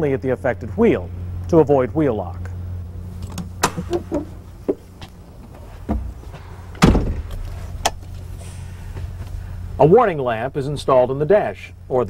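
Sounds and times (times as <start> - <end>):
knocks and thumps in truck cab: 3.2 - 4.9, 5.5 - 8.0
heavy thump: 5.8 - 6.2, 6.8 - 7.4.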